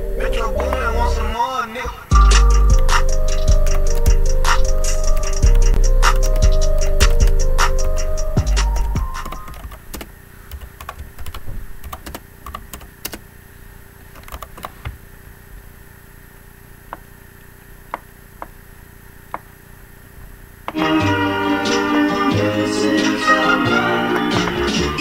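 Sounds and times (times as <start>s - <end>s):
faint steady hum: 0.0s - 25.0s
computer keys clicking: 6.1s - 13.2s, 14.1s - 14.8s.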